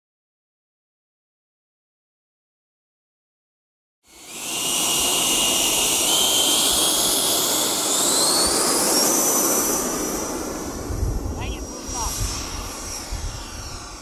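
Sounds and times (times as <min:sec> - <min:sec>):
electric ducted fan whine: 0:04.1 - 0:14.0.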